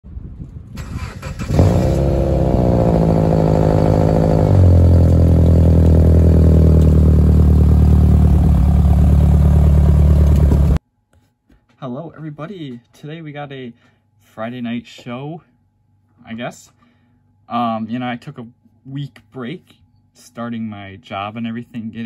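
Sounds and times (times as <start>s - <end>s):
engine starting and running: 0.8s - 10.8s.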